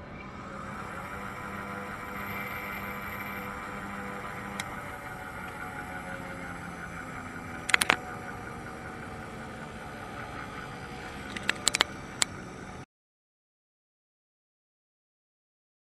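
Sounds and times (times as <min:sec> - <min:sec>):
bench grinder motor humming: 0:00.0 - 0:12.8
sharp clicks: 0:07.6 - 0:08.1, 0:11.0 - 0:12.4.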